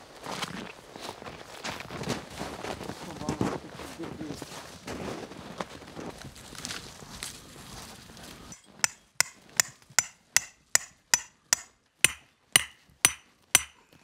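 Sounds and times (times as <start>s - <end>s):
hammer striking ground stake: 8.6s - 14.0s.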